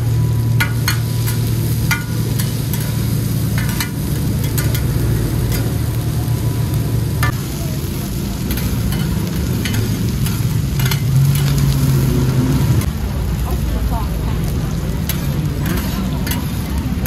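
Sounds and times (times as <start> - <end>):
food sizzling in oil: 0.0 - 17.0
metal spatulas scraping a pan: 0.6 - 5.7, 8.4 - 12.0, 15.0 - 16.8.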